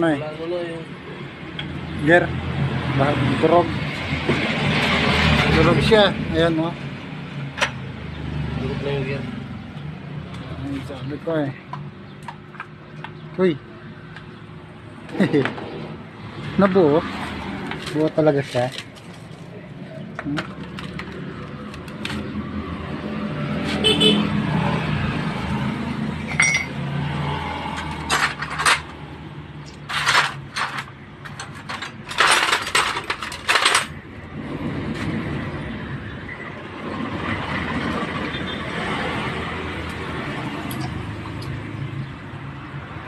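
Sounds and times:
metal engine parts clinking: 26.2s - 26.8s, 27.7s - 29.0s, 29.6s - 34.0s, 40.6s - 41.6s.

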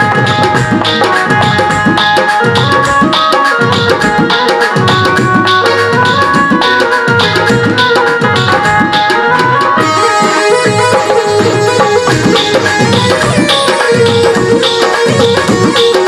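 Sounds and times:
tabla brisk rhythm: 0.0s - 16.0s
melody instrument sustained notes: 9.2s - 15.2s.

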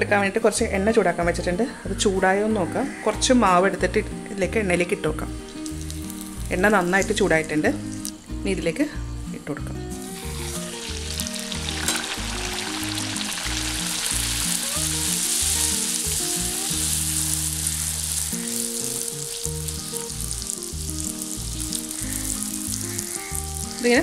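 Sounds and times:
bread sizzling in hot oil: 5.4s - 7.2s, 9.9s - 24.0s.

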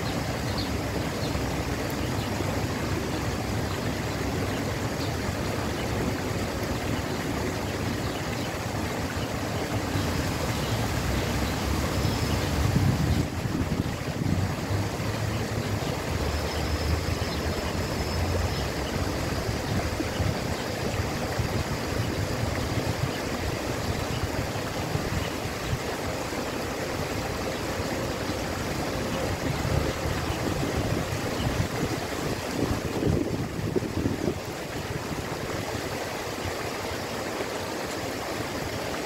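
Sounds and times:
waterfall splashing over rocks: 0.0s - 39.0s.

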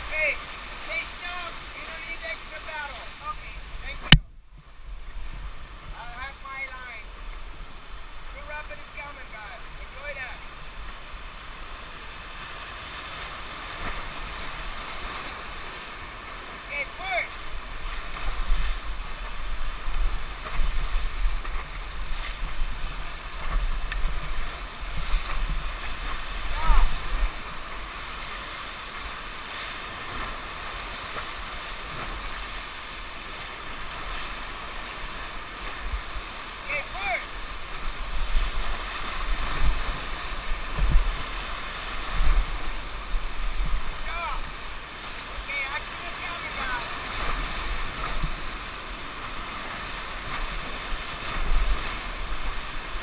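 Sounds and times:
whitewater rapids rushing: 0.0s - 4.1s, 6.0s - 53.0s
wind buffeting microphone: 37.5s - 44.1s.

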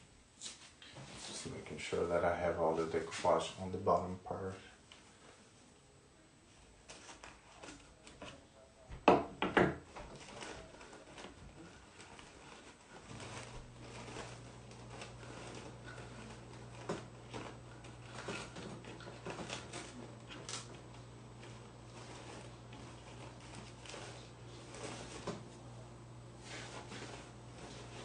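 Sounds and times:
low steady hum: 0.0s - 28.0s
tissue paper rustling and tapping: 9.0s - 25.5s.

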